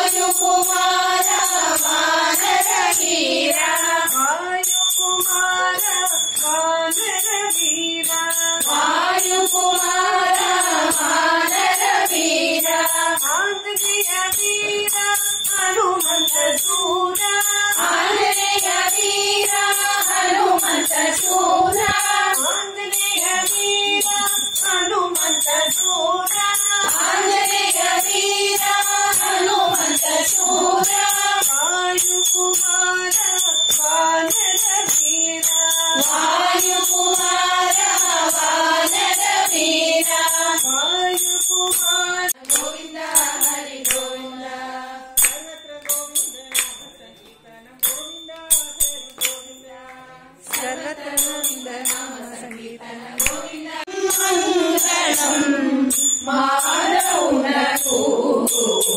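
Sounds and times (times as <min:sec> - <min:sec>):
jingling percussion: 0:00.0 - 0:58.9
women singing a devotional song: 0:00.0 - 0:58.9.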